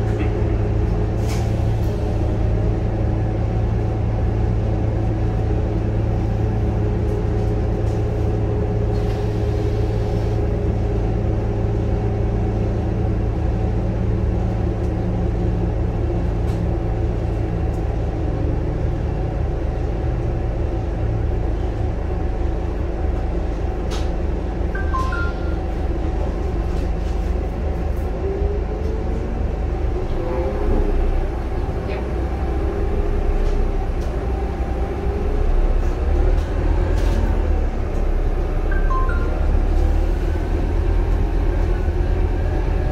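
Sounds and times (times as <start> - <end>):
bus engine: 0.0 - 42.9
two-note electronic beep: 24.8 - 25.6, 38.7 - 39.5.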